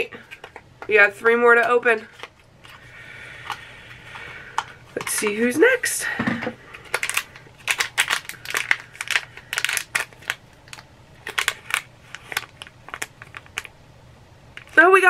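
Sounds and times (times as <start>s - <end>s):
wrapper crinkling and tearing: 3.4s - 5.4s, 6.7s - 13.8s.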